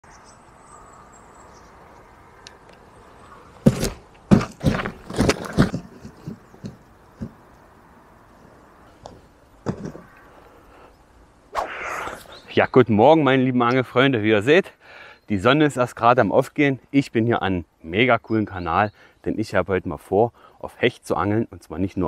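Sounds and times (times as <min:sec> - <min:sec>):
cardboard box bouncing on grass: 0:03.6 - 0:07.5, 0:09.1 - 0:10.1.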